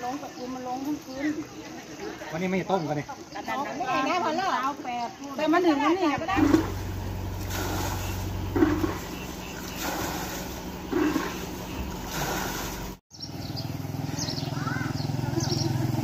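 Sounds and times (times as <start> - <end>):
water splashing from bucket: 6.3 - 13.0
bike riding through water: 6.3 - 16.0
engine hum: 6.3 - 16.0
motorcycle engine running: 6.4 - 16.0.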